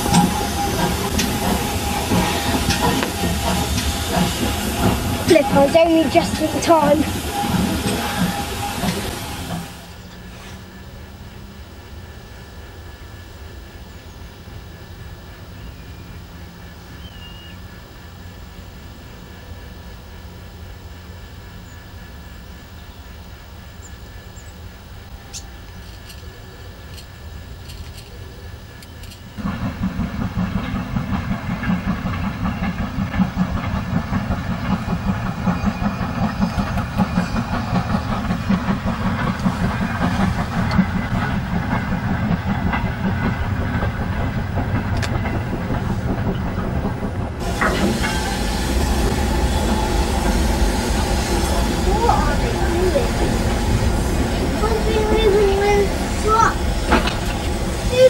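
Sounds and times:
steam hiss over low rumble: 0:00.0 - 0:58.0
steam locomotive exhaust beats: 0:00.0 - 0:58.0.

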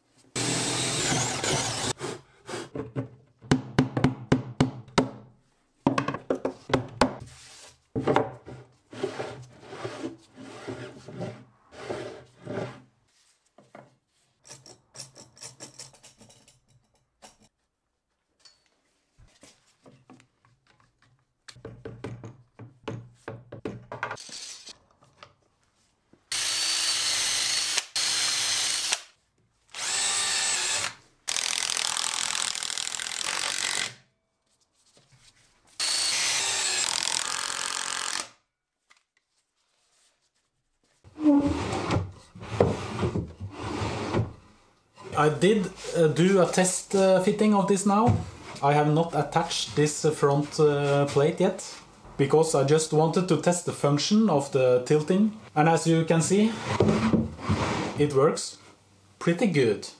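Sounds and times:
drill driving screws: 0:00.4 - 0:02.0, 0:24.2 - 0:24.7, 0:26.3 - 0:29.1, 0:29.7 - 0:34.0, 0:35.8 - 0:38.4
knocks and handling of wood: 0:05.8 - 0:08.8, 0:18.7 - 0:24.2.

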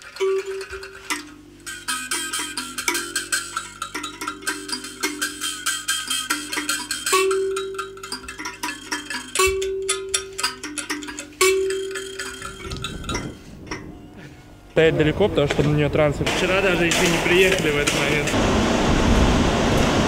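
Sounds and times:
clicking percussion: 0:00.0 - 0:14.0
bell-like notes: 0:00.0 - 0:14.2.

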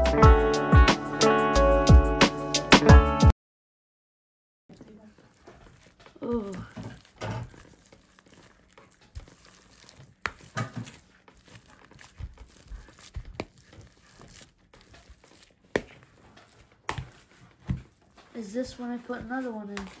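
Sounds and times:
potatoes squelching being mashed: 0:04.7 - 0:20.0.

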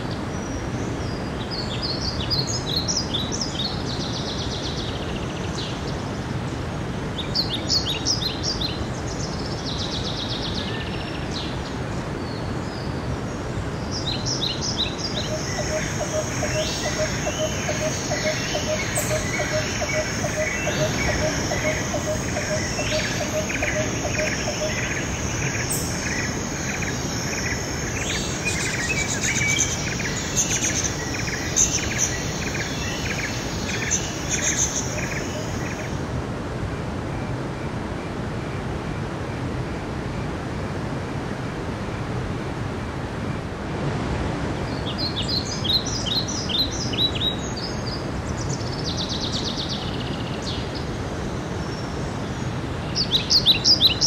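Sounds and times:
birds chirping and trilling: 0:13.8 - 0:36.1, 0:51.7 - 0:54.0.

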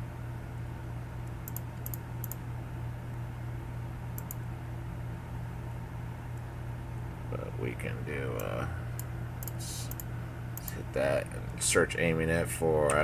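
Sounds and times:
computer humming: 0:00.0 - 0:13.0.

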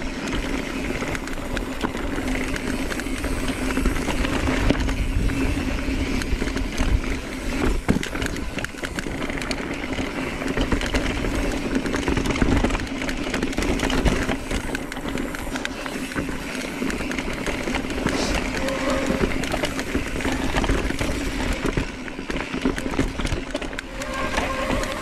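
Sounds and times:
bike rattling and knocking: 0:00.0 - 0:25.0
bike tyres crunching on trail: 0:00.0 - 0:25.0
wind rumbling on microphone: 0:00.0 - 0:25.0.

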